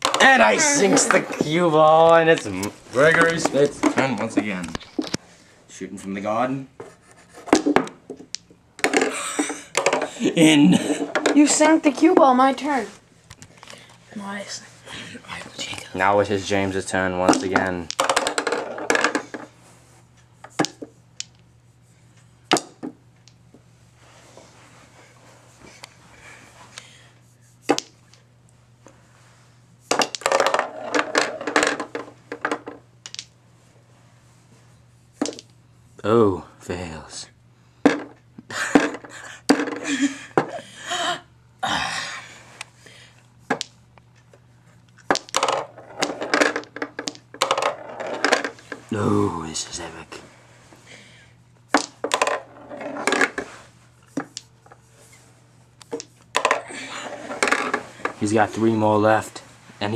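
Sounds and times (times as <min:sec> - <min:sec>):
pool balls clicking: 0:00.0 - 0:05.2, 0:07.4 - 0:12.4, 0:17.1 - 0:19.6, 0:20.4 - 0:21.4, 0:22.5 - 0:23.4, 0:27.7 - 0:28.2, 0:29.9 - 0:33.4, 0:35.2 - 0:35.6, 0:37.8 - 0:40.6, 0:43.5 - 0:49.1, 0:51.7 - 0:54.8, 0:55.8 - 0:58.7.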